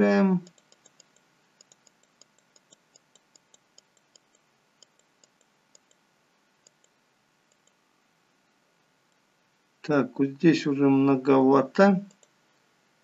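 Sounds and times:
computer mouse clicking: 0:00.4 - 0:06.0, 0:06.6 - 0:07.8, 0:12.0 - 0:12.4.

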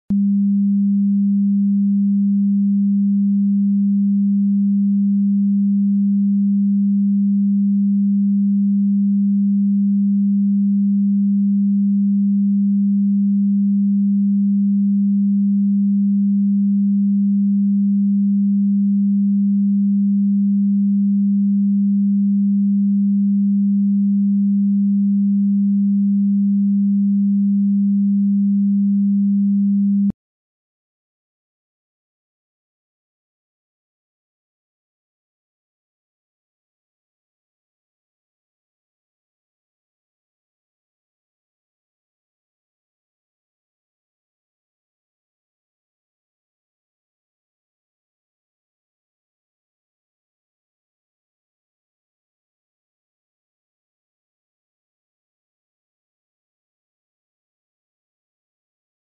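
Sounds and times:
low steady test tone: 0:00.1 - 0:30.2.

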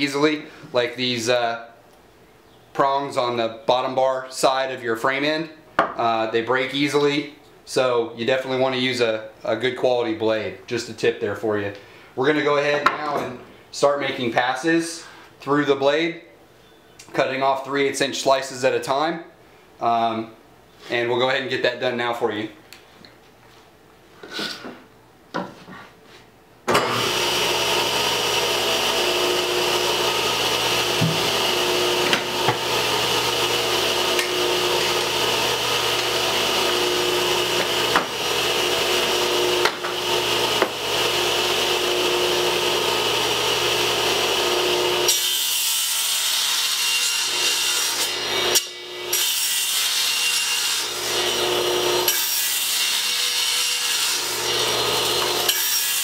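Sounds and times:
table saw cutting wood: 0:26.7 - 0:56.0.

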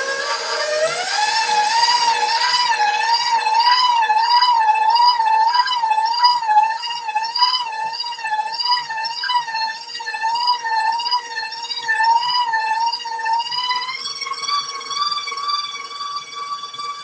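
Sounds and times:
stand mixer motor whining: 0:00.0 - 0:17.0.

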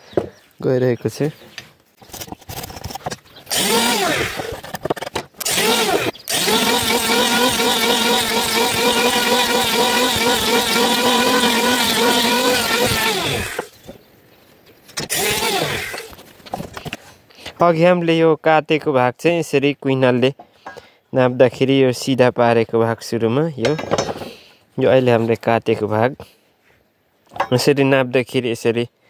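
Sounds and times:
electric wood planer running: 0:03.5 - 0:04.6, 0:05.4 - 0:13.7, 0:15.1 - 0:16.1.

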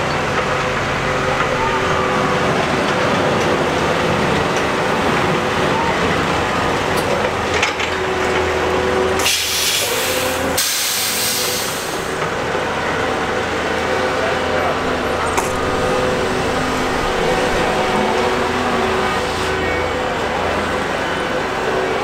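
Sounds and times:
diesel machinery running: 0:00.0 - 0:22.0
hissing air bursts: 0:09.2 - 0:12.2.

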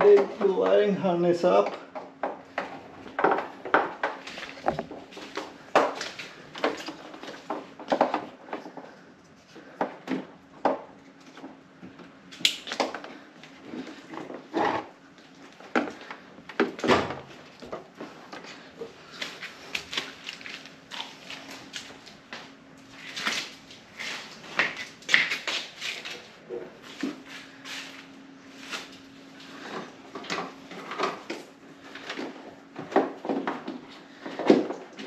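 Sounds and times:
hands rustling wiring harness: 0:17.3 - 0:35.0.

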